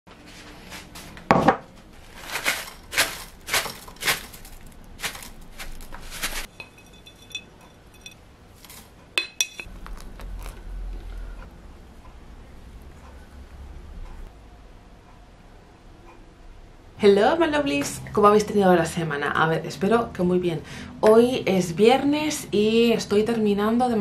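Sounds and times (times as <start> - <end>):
low steady hum: 0.1 - 24.0
metal strainer clinking on mug: 6.5 - 9.7.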